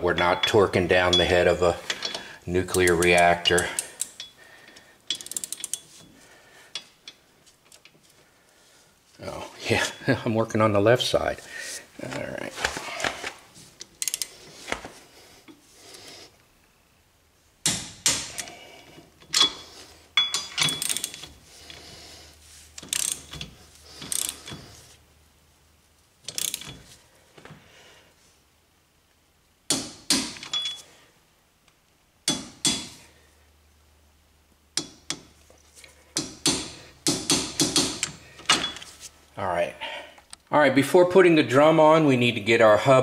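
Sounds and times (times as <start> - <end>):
socket wrench ratcheting clicks: 5.1 - 5.8, 14.0 - 14.3, 20.5 - 21.3, 22.8 - 24.6, 26.3 - 26.8.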